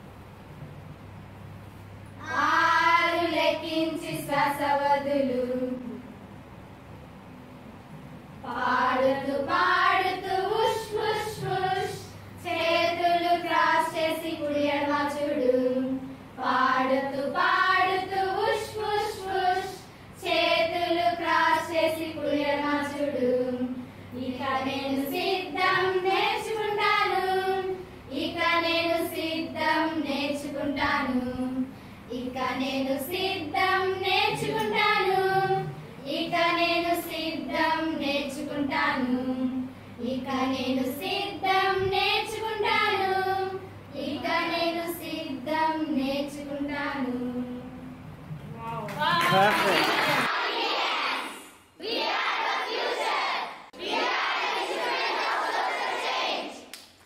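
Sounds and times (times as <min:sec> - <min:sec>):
women singing together: 0:02.2 - 0:06.0, 0:08.4 - 0:48.0.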